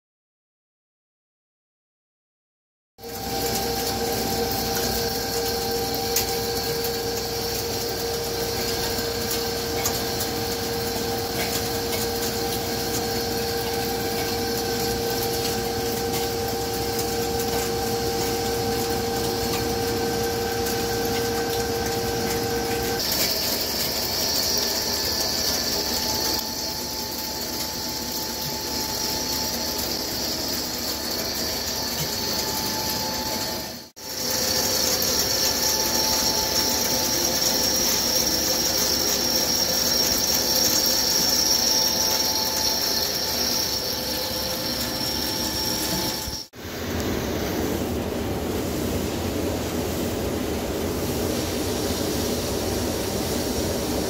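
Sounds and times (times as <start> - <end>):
high steady machine tones: 3.0 - 54.0
lathe cutting metal: 3.1 - 46.6.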